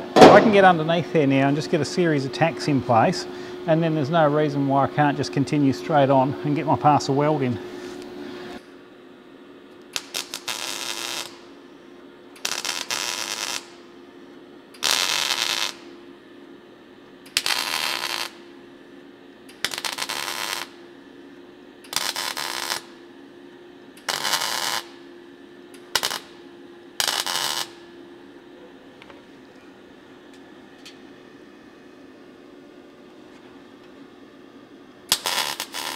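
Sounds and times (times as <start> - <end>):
welding arc bursts: 9.9 - 11.5, 12.4 - 13.8, 14.8 - 15.9, 17.3 - 18.5, 19.6 - 20.8, 21.9 - 23.0, 24.0 - 25.0, 25.9 - 26.4, 27.0 - 27.9, 35.1 - 35.9.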